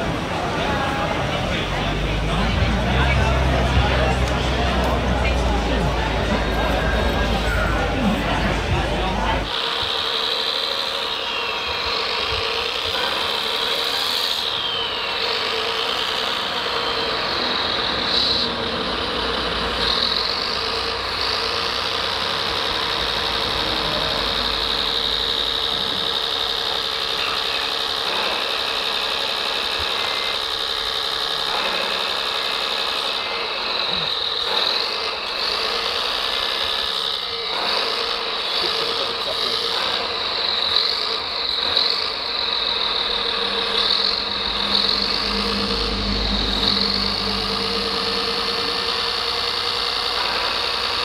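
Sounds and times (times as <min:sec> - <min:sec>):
diesel engine idling: 0:00.0 - 0:28.9, 0:30.0 - 0:51.0
hydraulic pump whine: 0:00.0 - 0:51.0.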